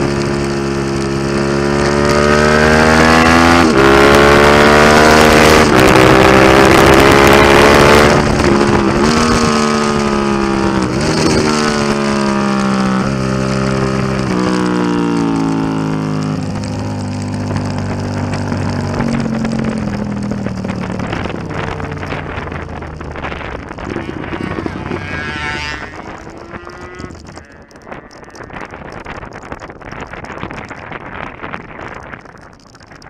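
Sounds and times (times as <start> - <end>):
motorcycle engine slowing: 0.0 - 33.0
wind on microphone: 0.0 - 33.0.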